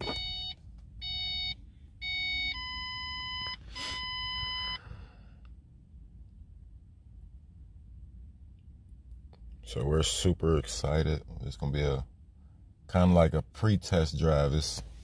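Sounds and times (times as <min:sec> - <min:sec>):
long steady beeps: 0:00.0 - 0:05.2
low steady hum: 0:00.0 - 0:15.0.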